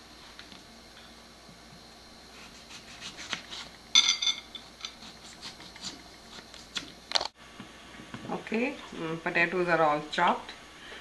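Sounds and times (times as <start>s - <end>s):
knife cutting potatoes on board: 2.4s - 3.7s, 4.9s - 7.0s.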